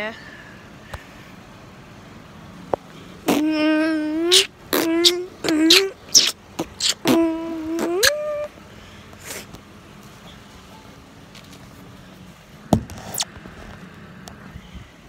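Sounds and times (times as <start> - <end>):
person beatboxing: 3.3 - 8.4.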